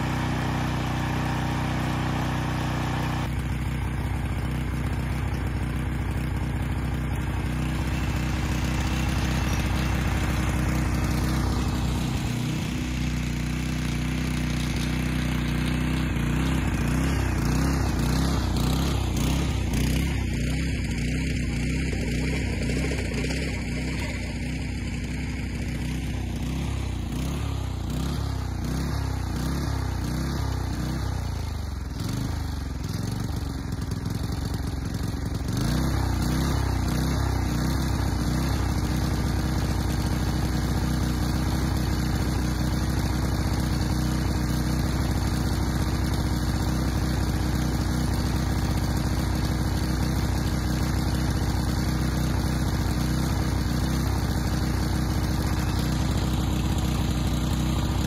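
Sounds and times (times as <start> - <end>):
small petrol mower engine hunting: 0.0 - 58.0.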